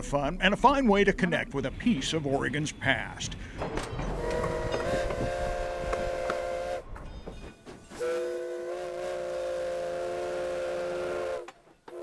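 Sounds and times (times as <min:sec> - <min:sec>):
train wheels rumbling and clacking: 0:00.0 - 0:08.1, 0:11.4 - 0:12.0
steam locomotive whistle chord: 0:04.2 - 0:06.9, 0:08.0 - 0:12.0.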